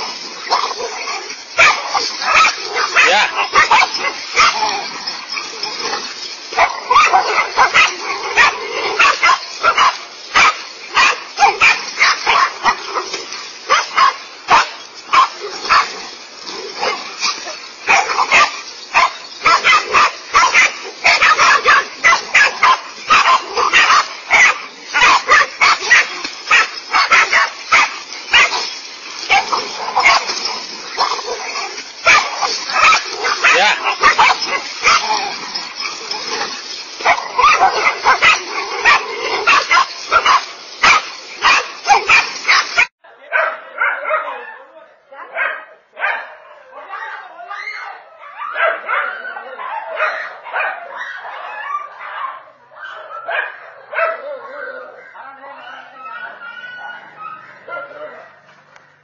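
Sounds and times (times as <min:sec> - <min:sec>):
dogs barking: 0:00.0 - 0:47.3, 0:48.0 - 0:59.0.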